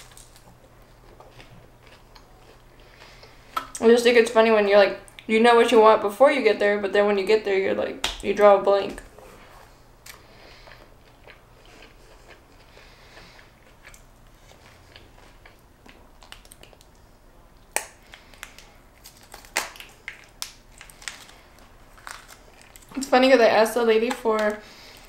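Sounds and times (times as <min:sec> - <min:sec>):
soft chewing: 0:00.0 - 0:03.9, 0:09.2 - 0:23.1.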